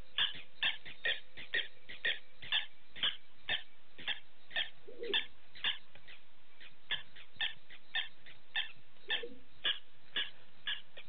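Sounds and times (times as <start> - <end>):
high animal chirps: 0.0 - 11.0
lower animal call: 0.1 - 11.0.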